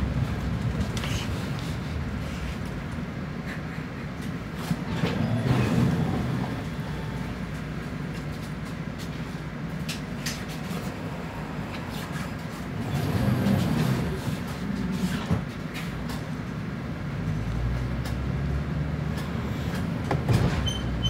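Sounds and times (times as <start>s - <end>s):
bus engine and road rumble: 0.0s - 21.0s.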